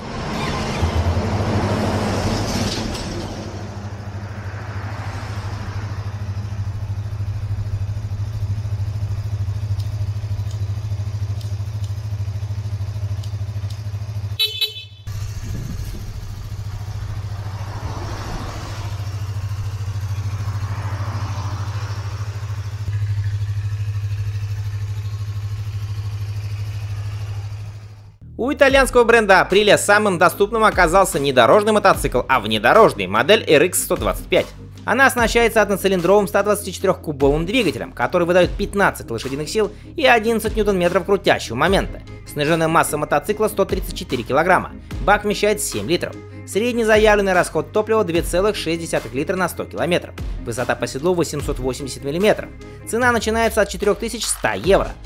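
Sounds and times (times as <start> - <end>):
motorcycle engine idling: 3.6 - 29.0, 35.2 - 36.6, 37.2 - 45.4, 46.2 - 47.5, 50.1 - 55.0
short horn beep: 14.3 - 15.2.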